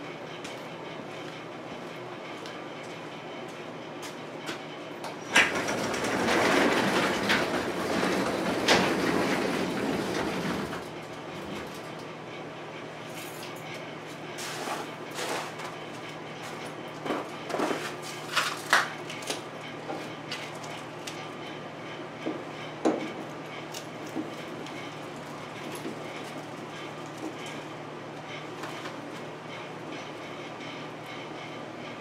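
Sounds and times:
garage door rumbling and rattling: 0:05.1 - 0:12.0.

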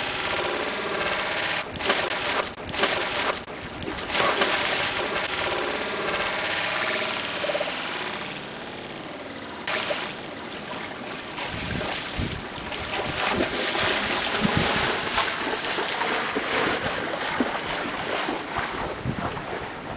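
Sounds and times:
choppy water lapping: 0:00.0 - 0:08.7, 0:09.6 - 0:19.9
wind gusting on microphone: 0:11.3 - 0:19.9.

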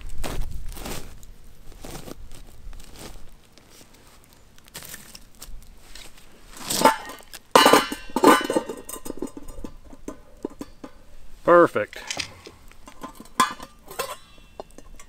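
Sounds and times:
metal cookware clanking: 0:06.6 - 0:11.1, 0:12.0 - 0:15.0
ringing metal knocks: 0:06.9 - 0:11.0.

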